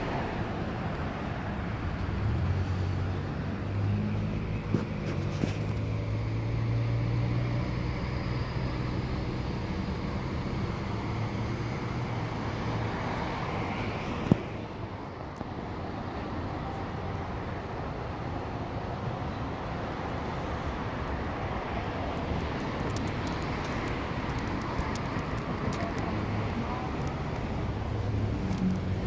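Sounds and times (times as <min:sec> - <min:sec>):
idling vehicles and traffic hum: 0:00.0 - 0:29.0.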